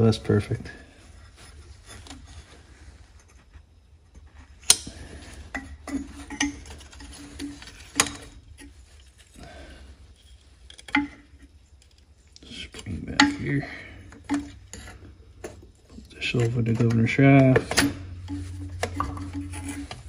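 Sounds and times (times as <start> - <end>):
metal parts clicking and clinking: 10.1 - 20.0.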